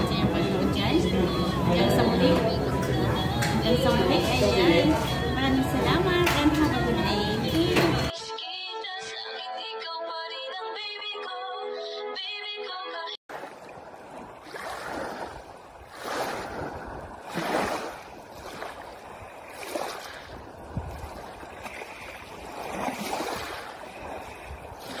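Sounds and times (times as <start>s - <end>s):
waves washing over pebbles: 13.3s - 25.0s.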